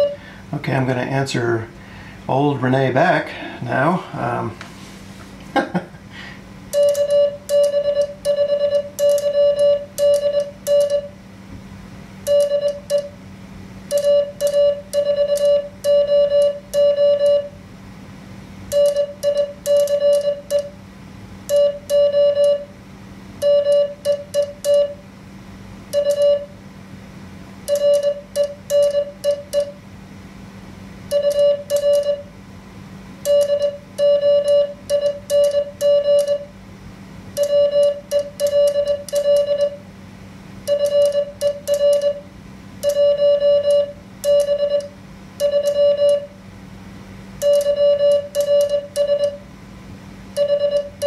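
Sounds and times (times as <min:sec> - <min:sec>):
morse code beeps: 0:00.0 - 0:00.2, 0:06.7 - 0:11.2, 0:12.3 - 0:13.2, 0:13.9 - 0:17.6, 0:18.7 - 0:20.8, 0:21.5 - 0:22.7, 0:23.4 - 0:25.0, 0:25.9 - 0:26.6, 0:27.7 - 0:29.8, 0:31.1 - 0:32.3, 0:33.2 - 0:36.5, 0:37.4 - 0:39.8, 0:40.7 - 0:46.3, 0:47.4 - 0:49.4, 0:50.4 - 0:51.0
faint steady hum: 0:00.0 - 0:51.0.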